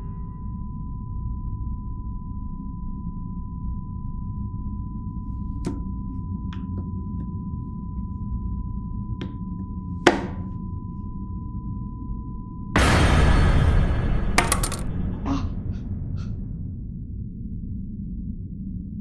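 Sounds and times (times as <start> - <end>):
knife chopping on wooden board: 10.1 - 10.4.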